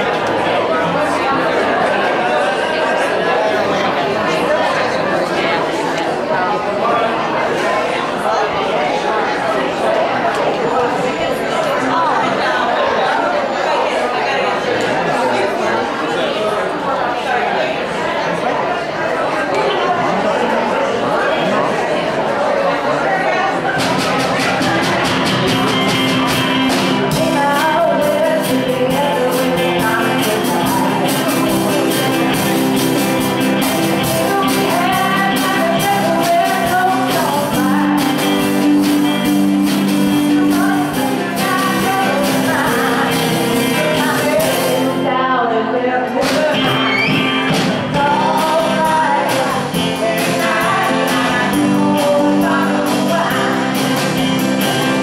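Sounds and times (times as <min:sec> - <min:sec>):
electric and acoustic guitars: 0:00.0 - 0:08.1, 0:23.4 - 0:55.0
keyboard: 0:00.0 - 0:55.0
drums: 0:23.5 - 0:45.1, 0:46.2 - 0:55.0
person singing: 0:23.8 - 0:55.0.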